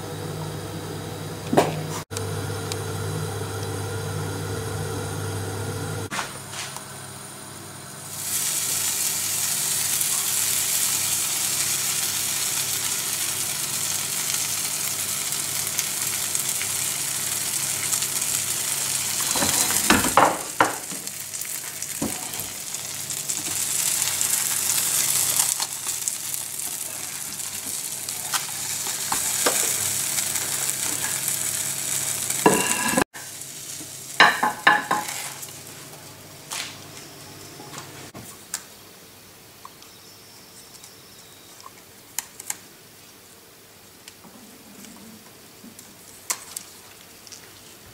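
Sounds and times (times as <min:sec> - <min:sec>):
egg sizzling in a pan: 0:08.1 - 0:35.6.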